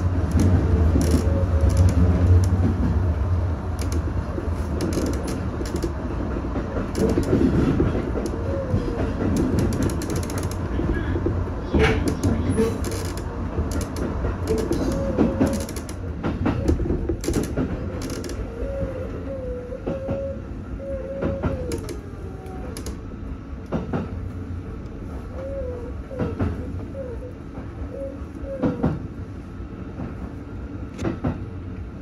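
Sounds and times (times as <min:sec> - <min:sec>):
wheels clicking over rail joints: 0:00.0 - 0:18.9, 0:21.1 - 0:23.0
train rumble: 0:00.0 - 0:32.0
wheel squeals: 0:13.8 - 0:16.0.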